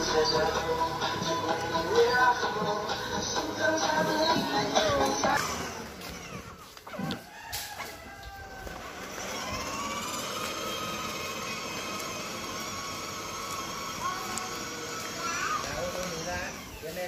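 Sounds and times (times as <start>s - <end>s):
toy car motor whining: 3.6s - 7.2s, 8.4s - 17.0s.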